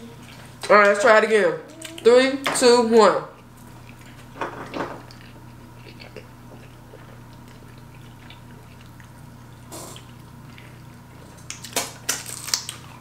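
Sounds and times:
wet chewing and lip smacks: 3.4 - 4.3, 5.1 - 11.8, 12.4 - 13.0.

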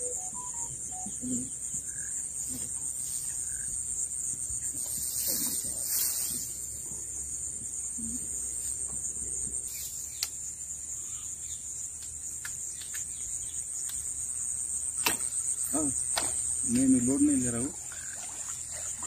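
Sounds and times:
insects trilling: 0.0 - 19.0
sharp ticks: 10.2 - 10.4.

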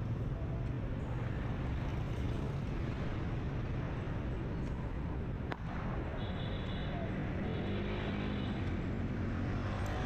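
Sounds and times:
traffic rumble: 0.0 - 10.0.

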